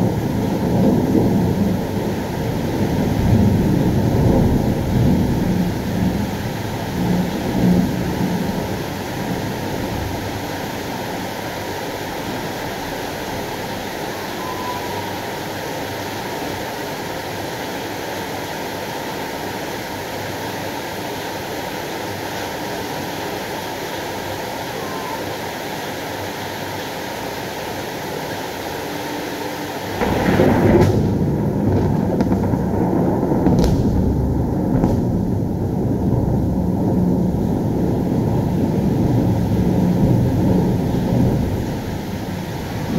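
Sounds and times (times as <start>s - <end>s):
thunder rumbling and cracking: 0.0s - 15.2s, 29.9s - 42.9s
rain hissing: 0.0s - 42.9s.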